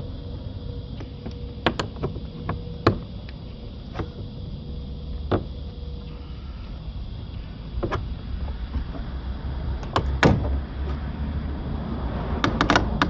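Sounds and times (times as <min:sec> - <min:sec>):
plastic clips popping loose: 0:12.4 - 0:13.0.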